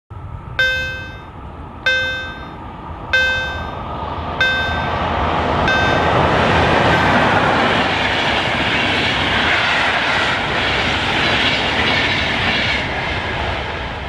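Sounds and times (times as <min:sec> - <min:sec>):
train rumbling past: 0:00.2 - 0:14.0
level crossing bell dinging: 0:00.6 - 0:01.3, 0:01.9 - 0:02.6, 0:03.2 - 0:03.8, 0:04.4 - 0:05.1, 0:05.7 - 0:06.2.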